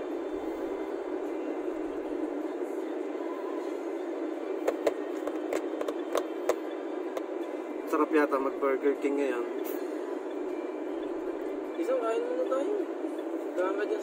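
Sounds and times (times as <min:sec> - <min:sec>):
car cabin road noise: 0:00.0 - 0:14.0.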